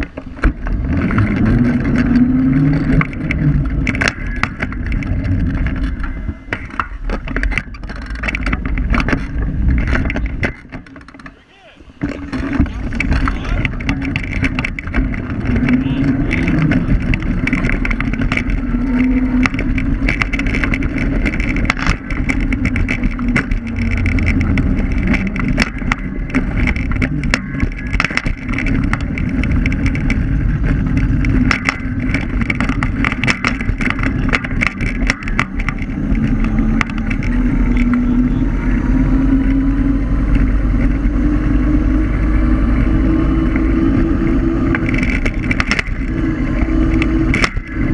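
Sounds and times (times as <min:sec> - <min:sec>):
rattling knocks over rough pavement: 0:00.0 - 0:38.2, 0:42.8 - 0:47.9
tyres rumbling on road: 0:00.0 - 0:47.9
wind: 0:00.0 - 0:47.9
motor hum rising in pitch: 0:35.0 - 0:47.9.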